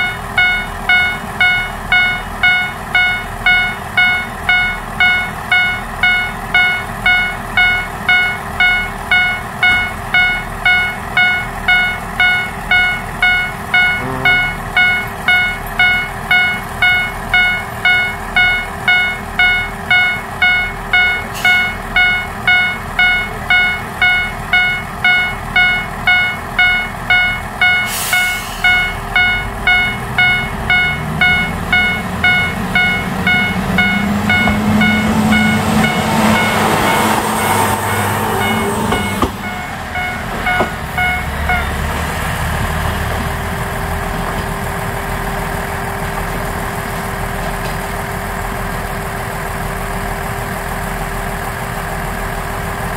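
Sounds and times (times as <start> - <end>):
level crossing warning bell: 0.0 - 42.0
diesel railcar engine: 0.0 - 52.9.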